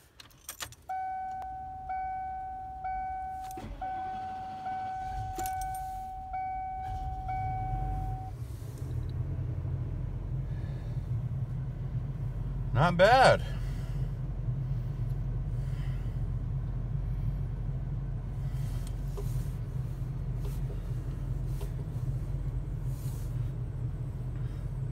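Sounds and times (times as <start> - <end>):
dashboard warning chime: 0.9 - 8.4
engine cranking and idling: 2.8 - 24.9.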